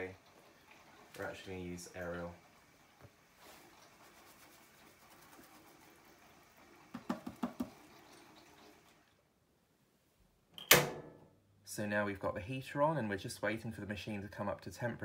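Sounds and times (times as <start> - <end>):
water running from a hose: 0.0 - 9.1.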